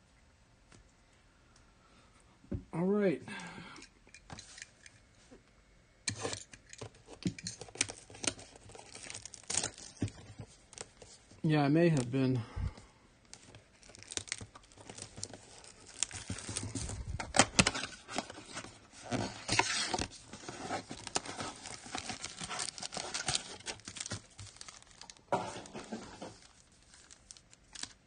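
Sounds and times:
wrapping tearing and crinkling: 6.2 - 12.2, 13.2 - 28.0.

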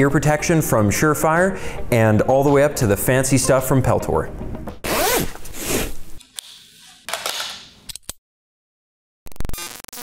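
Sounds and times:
jacket zipper pulled: 4.8 - 6.9.

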